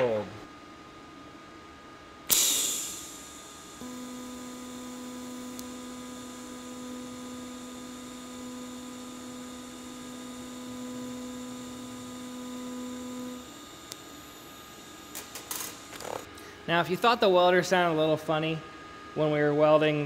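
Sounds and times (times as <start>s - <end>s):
welding arc steady tone: 2.2s - 16.3s.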